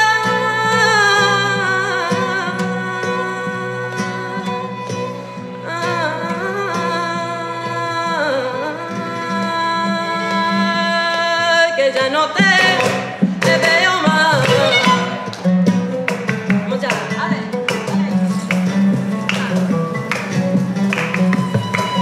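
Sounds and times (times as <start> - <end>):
instrumental accompaniment: 12.1 - 22.0.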